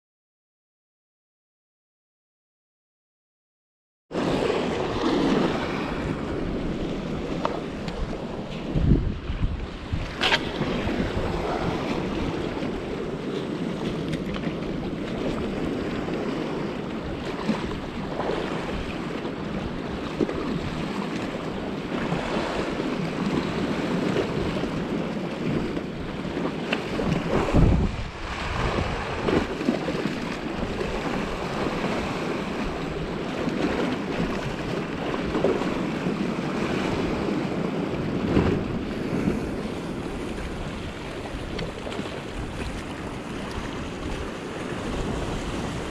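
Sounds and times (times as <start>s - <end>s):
waves splashing against rocks: 4.2s - 45.9s
wind buffeting microphone: 4.2s - 45.9s.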